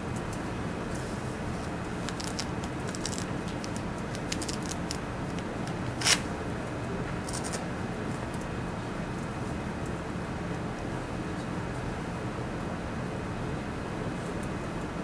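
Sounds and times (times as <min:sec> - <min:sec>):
faint clicks and rustles: 0:01.6 - 0:06.2.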